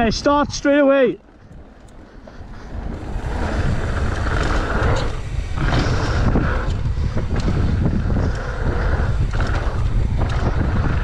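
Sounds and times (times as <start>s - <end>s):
bike tyres rolling on dirt: 0.0s - 11.0s
wind buffeting microphone: 0.0s - 11.0s
bike clattering over bumps: 2.7s - 11.0s.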